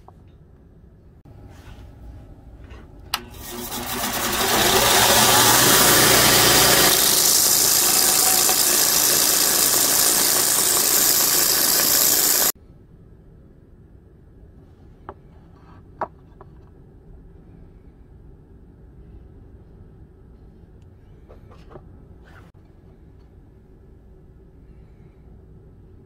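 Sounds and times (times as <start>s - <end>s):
belt grinder sanding wood: 3.4s - 12.6s.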